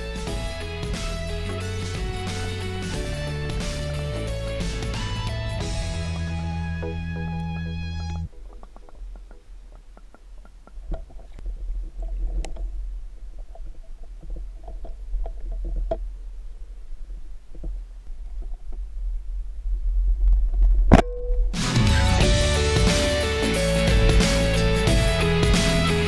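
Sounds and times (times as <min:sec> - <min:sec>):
muffled rumble of moving water: 0:08.2 - 0:21.5
faint underwater clicks and knocks: 0:08.3 - 0:18.9.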